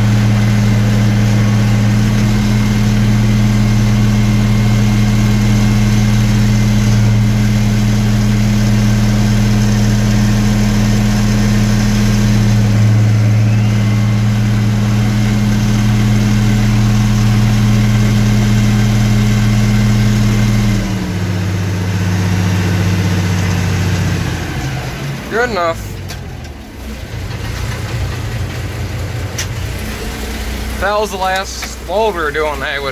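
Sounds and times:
tractor engine running: 0.0s - 32.9s.

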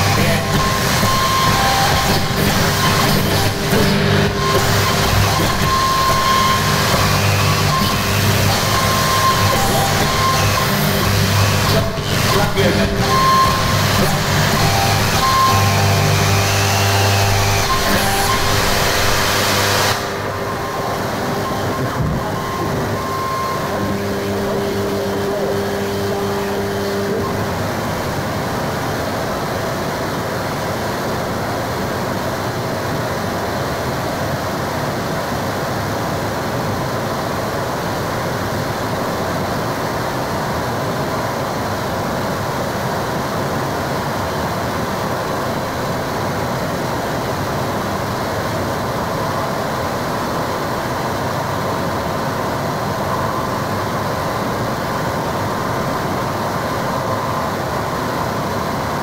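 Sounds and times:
distorted synth noise: 0.0s - 33.3s
faint held whine: 0.0s - 59.0s.

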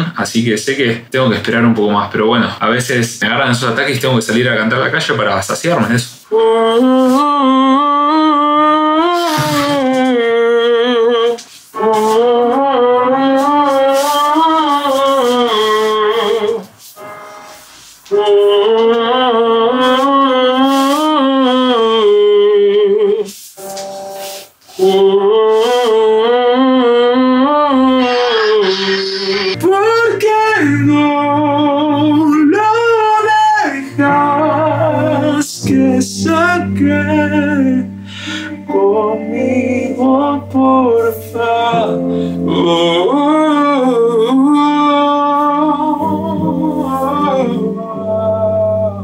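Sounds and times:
wordless vocal melody with vibrato: 5.7s - 49.0s.

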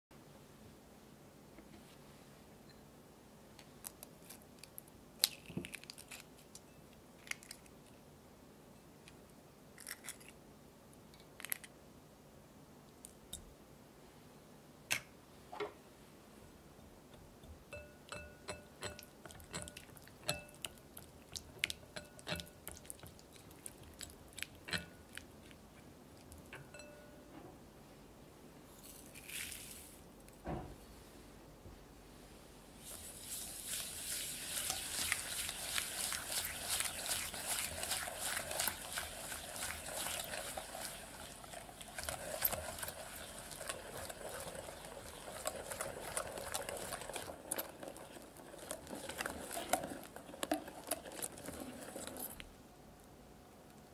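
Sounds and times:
eggs cracking: 3.8s - 6.6s, 18.4s - 26.7s, 33.3s - 52.5s
whisk ticking against glass bowl: 17.7s - 20.8s, 21.7s - 23.2s, 26.6s - 27.2s
sugar pouring hiss: 28.8s - 30.0s, 32.8s - 52.4s.

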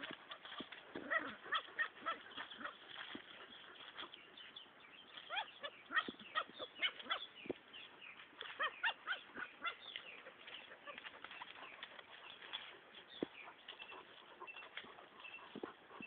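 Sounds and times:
small dog yapping and whining: 0.0s - 3.3s, 5.2s - 7.3s, 8.4s - 11.6s.

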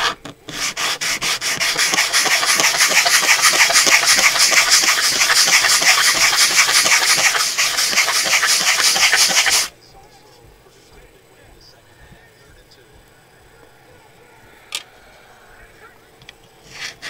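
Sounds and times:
plastic scraping on sandpaper: 0.0s - 9.7s, 16.6s - 17.0s.

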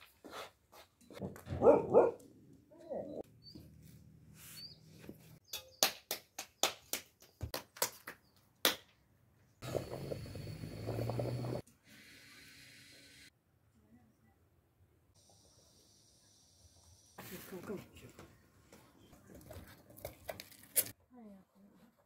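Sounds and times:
dog barking: 1.5s - 2.2s.

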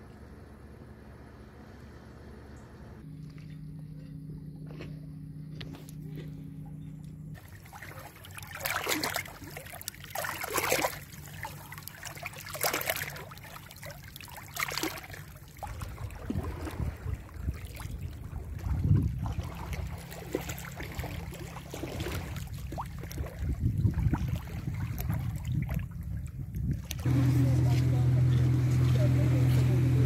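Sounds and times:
low hum: 0.0s - 30.0s
waves lapping against rocks: 7.4s - 29.9s.

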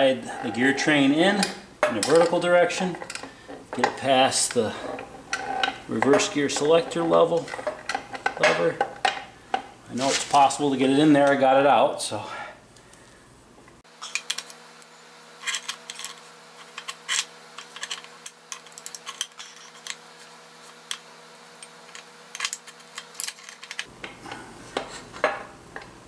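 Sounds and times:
metal gears clicking and clinking: 22.0s - 23.9s.

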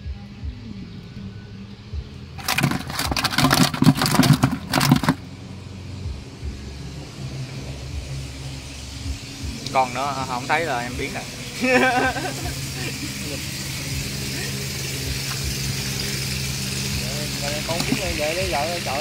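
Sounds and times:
low motor hum: 0.0s - 19.0s
fish flapping in plastic bucket: 2.4s - 5.2s.

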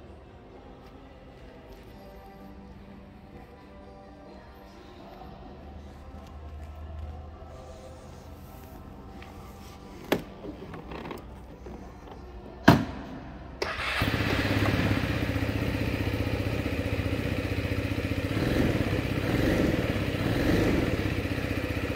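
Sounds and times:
scooter engine starting and idling: 13.6s - 21.9s.

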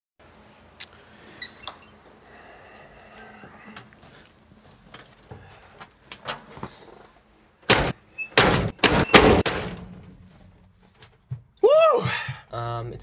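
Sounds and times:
metal car door slamming: 7.7s - 10.1s
car body being banged: 7.7s - 10.3s.

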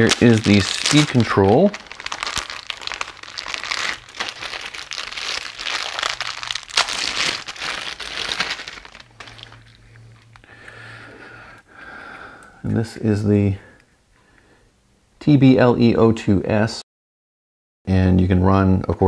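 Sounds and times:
plastic bags crinkling: 0.0s - 10.5s.

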